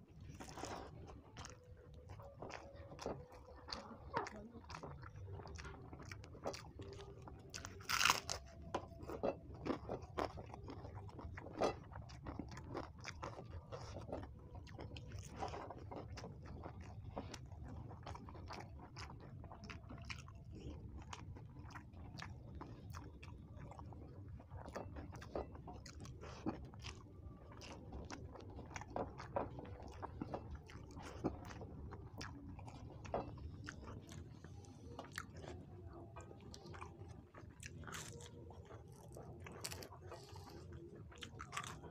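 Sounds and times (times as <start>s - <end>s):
low steady hum: 0.0s - 41.9s
person chewing food: 0.0s - 41.9s.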